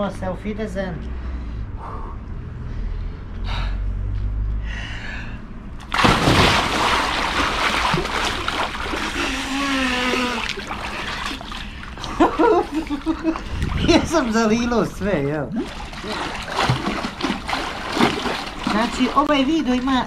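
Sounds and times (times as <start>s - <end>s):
big splash into pool: 5.8s - 11.4s
water sloshing in pool: 5.8s - 20.0s.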